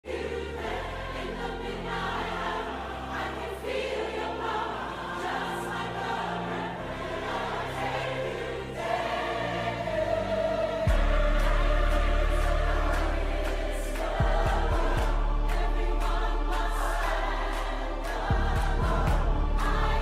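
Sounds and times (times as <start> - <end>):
choir singing sustained chords: 0.0 - 20.0
deep bass notes: 10.8 - 20.0.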